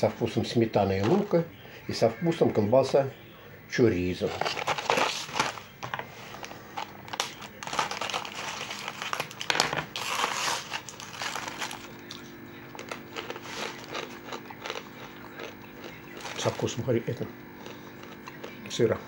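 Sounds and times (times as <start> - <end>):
plastic film crinkling: 4.2 - 12.0
knife slitting plastic film: 7.1 - 11.8.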